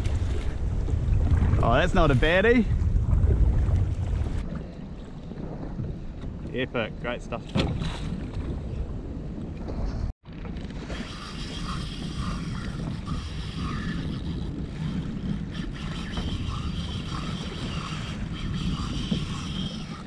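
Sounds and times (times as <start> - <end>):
wind buffeting microphone: 0.0 - 20.0
water sloshing against kayak hull: 7.4 - 13.2.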